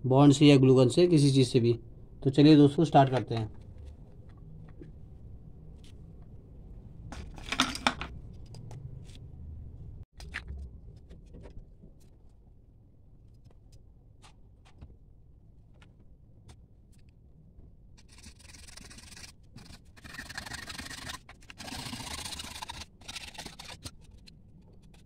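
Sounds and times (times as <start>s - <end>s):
plastic parts clattering: 7.2s - 8.2s.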